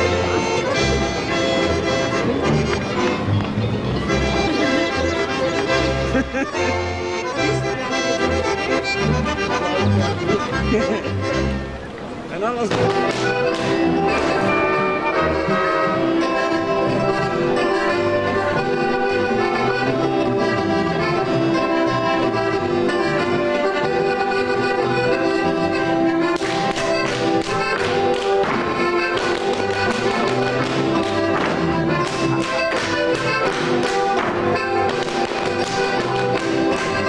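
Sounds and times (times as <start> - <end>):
accordion folk dance tune: 0.0 - 37.0
hand slaps on thighs and soles: 26.3 - 36.9.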